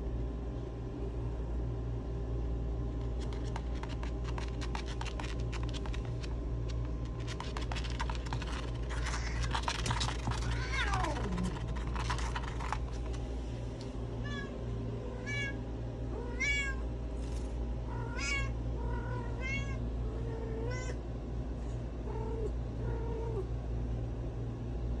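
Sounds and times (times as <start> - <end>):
cat meowing: 10.4 - 11.5, 14.2 - 14.5, 15.1 - 15.6, 16.2 - 16.8, 17.9 - 19.8, 20.4 - 21.0.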